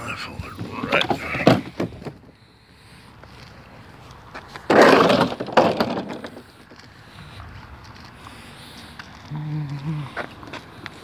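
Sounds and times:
barricade scraping clatter: 0:04.7 - 0:06.5.

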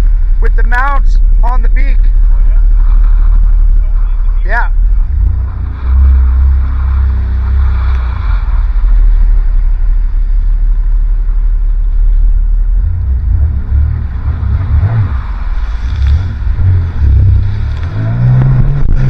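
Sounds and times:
jet ski engine rumble: 0:00.0 - 0:19.0
wind buffeting microphone: 0:14.5 - 0:19.0.

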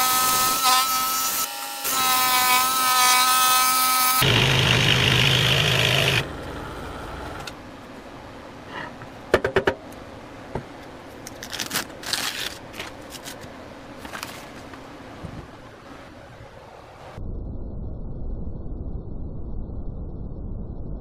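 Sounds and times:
scroll saw cutting wood: 0:00.0 - 0:06.6.

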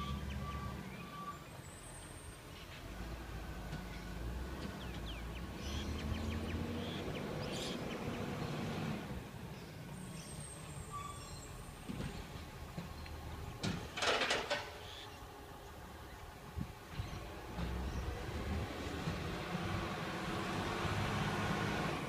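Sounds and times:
distant truck engine rumble: 0:00.0 - 0:22.0.

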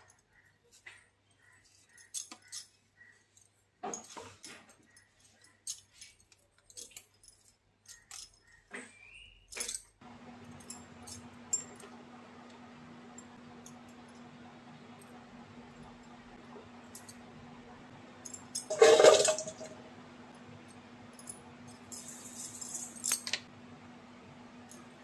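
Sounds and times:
low hum and hiss: 0:10.0 - 0:25.0.

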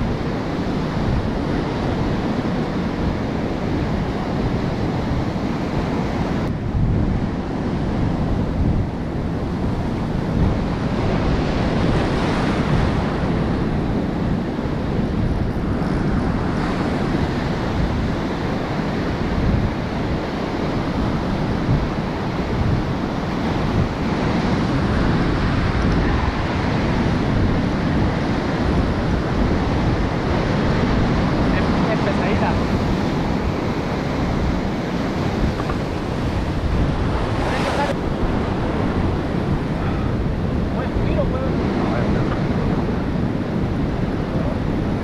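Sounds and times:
ocean surf breaking on sand: 0:00.0 - 0:45.0
wind buffeting microphone: 0:00.0 - 0:45.0.

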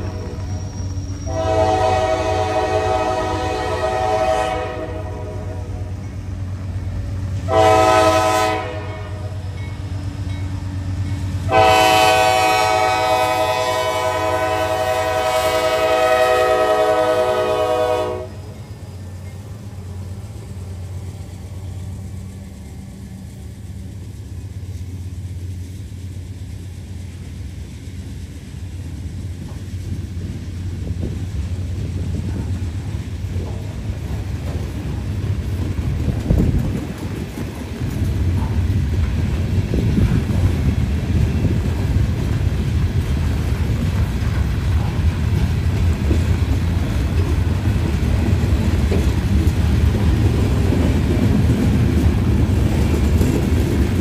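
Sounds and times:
locomotive air horn blasts: 0:00.0 - 0:06.0, 0:07.4 - 0:09.4, 0:11.4 - 0:18.5
passing train rumble: 0:00.0 - 0:54.0.

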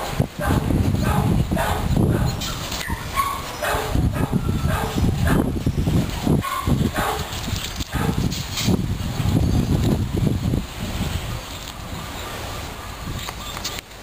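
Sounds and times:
dog barking and yipping: 0:00.0 - 0:05.6, 0:06.3 - 0:08.3.

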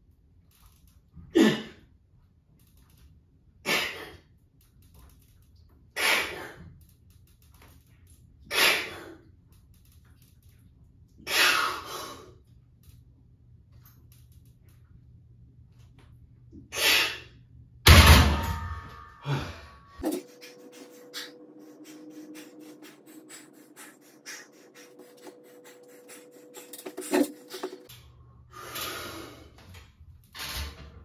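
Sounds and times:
heavy breathing: 0:19.2 - 0:27.9.

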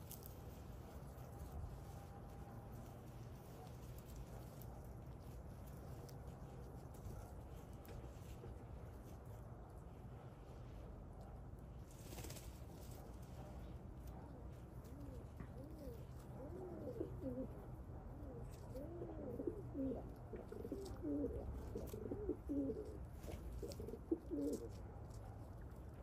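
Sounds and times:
pigeons cooing: 0:14.6 - 0:24.8.

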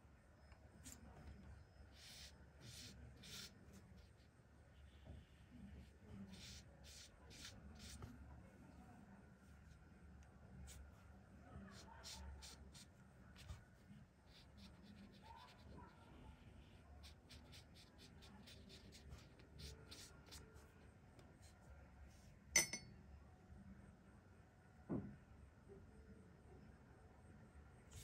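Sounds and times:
brush strokes on paper: 0:01.9 - 0:08.2, 0:11.6 - 0:20.8.

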